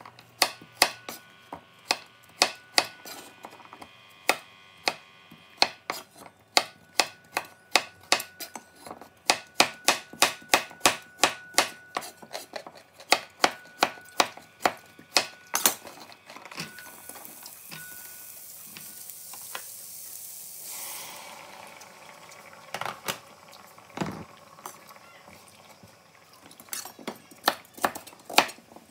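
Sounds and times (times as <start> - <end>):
vegetables sizzling in a pan: 16.6 - 28.9.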